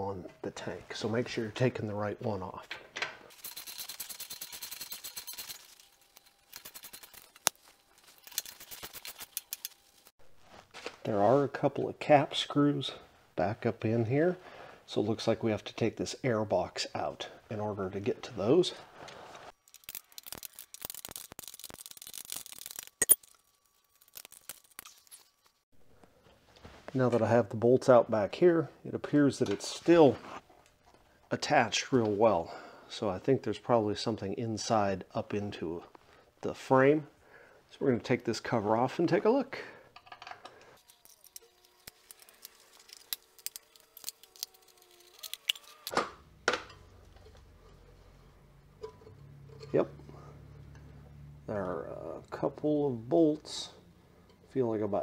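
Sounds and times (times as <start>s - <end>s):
hex key ticking and scraping: 3.3s - 9.8s, 40.8s - 45.9s.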